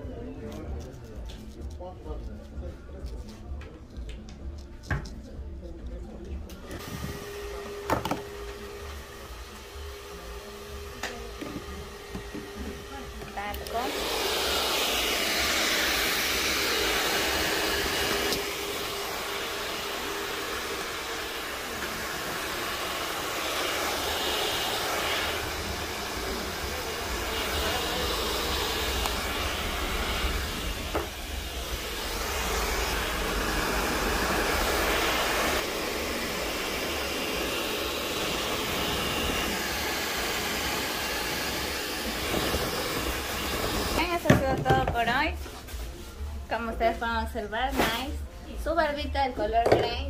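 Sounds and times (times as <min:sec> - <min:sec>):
hair dryer blowing: 0:06.6 - 0:45.2.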